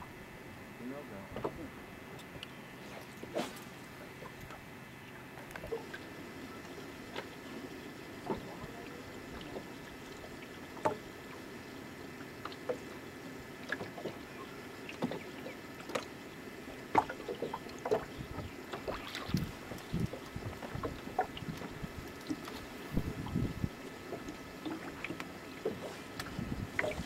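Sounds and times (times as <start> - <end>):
wind: 0.0 - 27.0
low wash of water: 3.0 - 27.0
waves slapping against boat hull: 7.0 - 11.1, 13.6 - 27.0.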